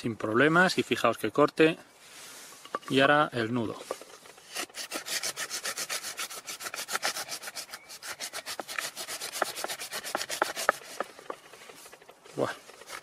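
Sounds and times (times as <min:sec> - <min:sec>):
knife sawing through rope: 0:03.9 - 0:13.0.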